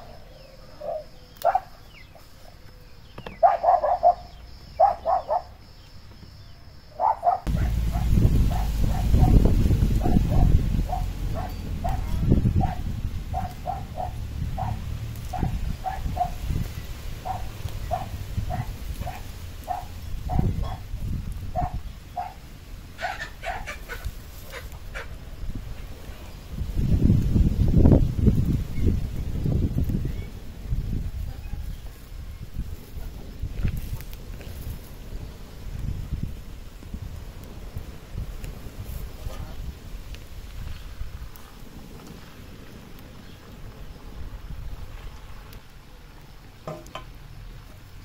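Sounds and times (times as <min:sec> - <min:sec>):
dog barking: 0:00.8 - 0:01.9, 0:03.4 - 0:05.6, 0:06.9 - 0:09.4, 0:10.0 - 0:16.5, 0:17.2 - 0:20.9, 0:21.5 - 0:22.4, 0:23.0 - 0:25.1
steady low rushing noise: 0:07.5 - 0:23.0.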